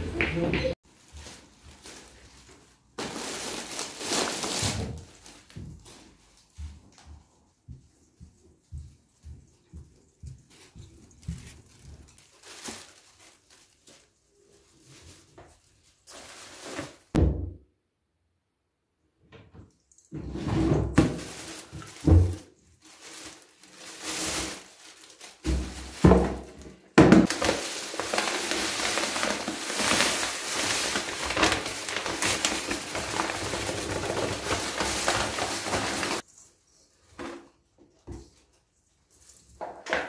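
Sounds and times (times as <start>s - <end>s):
plastic bags rustling: 0.8s - 6.6s, 10.5s - 17.2s, 20.9s - 36.4s
bags thumping: 3.0s - 5.8s, 20.9s - 36.2s.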